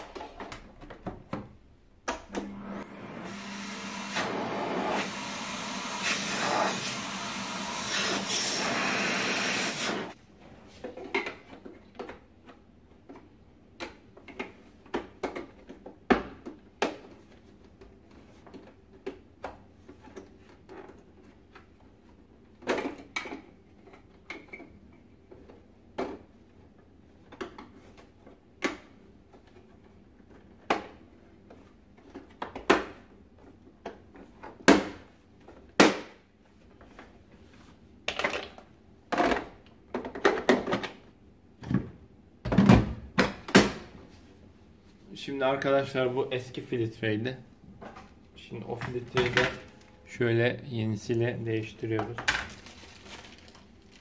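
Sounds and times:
plastic parts clicking and knocking: 0:10.8 - 0:26.4, 0:38.0 - 0:43.8.

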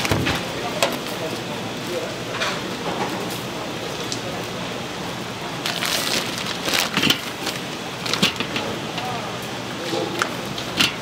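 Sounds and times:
rustling and knocking of food handling: 0:05.6 - 0:09.2, 0:09.8 - 0:11.0.

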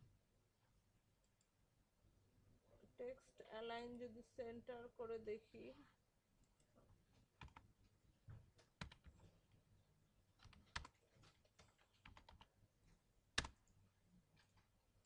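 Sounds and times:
typing on computer keyboard: 0:07.4 - 0:07.6, 0:08.6 - 0:09.2, 0:10.4 - 0:12.5, 0:13.4 - 0:13.8.

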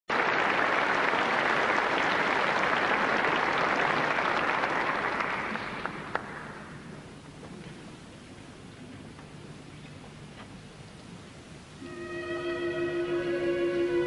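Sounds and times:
audience applauding: 0:00.1 - 0:06.6.

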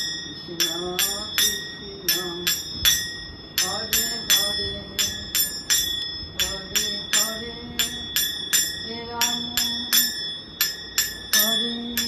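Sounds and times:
hand bell ringing: 0:00.0 - 0:12.0.

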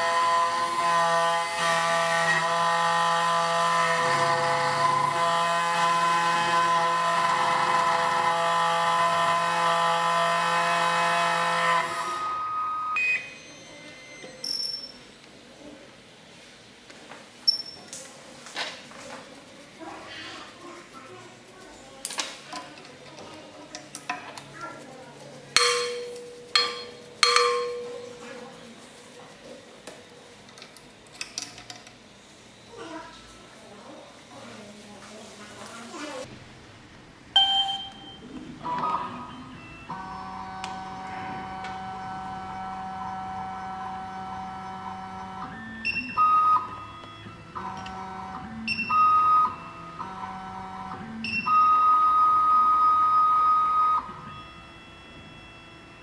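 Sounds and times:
sharp metallic clanks: 0:25.6 - 0:28.2
key cutting machine whine: 0:39.3 - 0:56.0.

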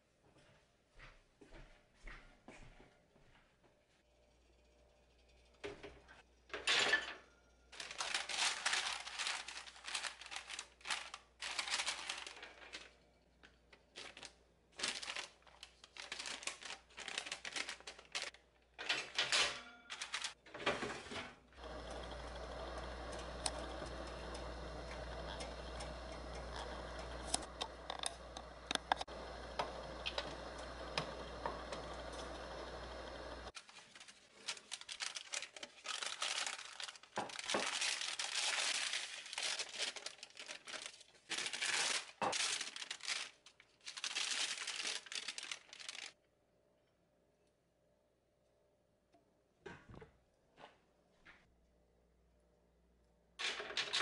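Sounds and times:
baking paper crinkling: 0:07.7 - 0:18.4, 0:19.0 - 0:20.4, 0:21.8 - 0:46.2.

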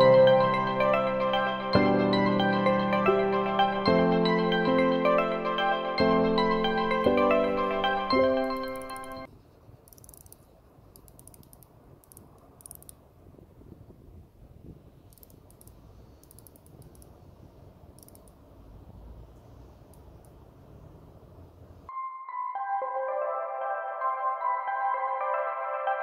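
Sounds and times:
watch bezel clicking: 0:08.5 - 0:09.2, 0:09.8 - 0:13.0, 0:15.1 - 0:17.2, 0:18.0 - 0:18.4.

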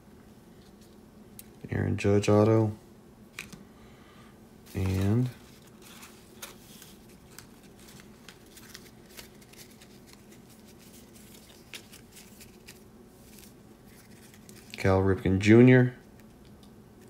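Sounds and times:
light rustling of card sleeves: 0:04.6 - 0:15.1
trading cards being shuffled: 0:04.7 - 0:14.9.

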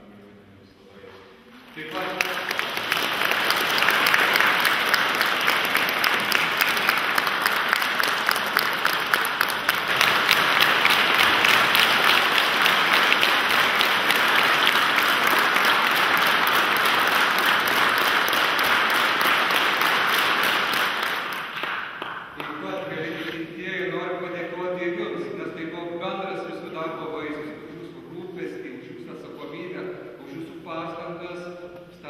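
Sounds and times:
crowd applauding: 0:01.6 - 0:22.7.

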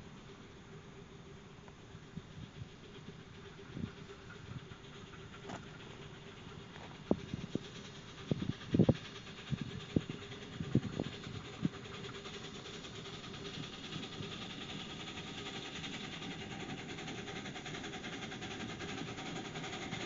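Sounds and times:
miniature steam locomotive running: 0:00.0 - 0:20.0.

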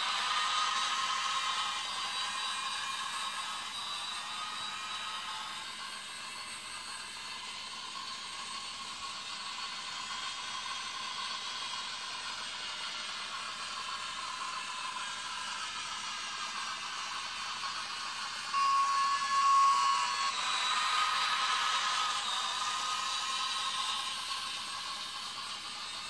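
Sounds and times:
toy train whirring: 0:00.0 - 0:26.0
steady high tone: 0:18.5 - 0:26.0.

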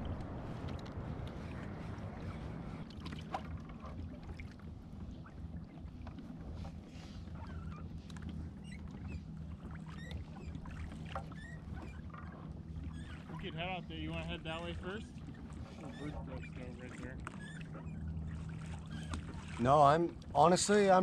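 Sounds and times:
low steady rumble: 0:00.0 - 0:21.0
water lapping against hull: 0:00.0 - 0:21.0
faint high squeaks: 0:08.6 - 0:13.5, 0:15.7 - 0:19.2.

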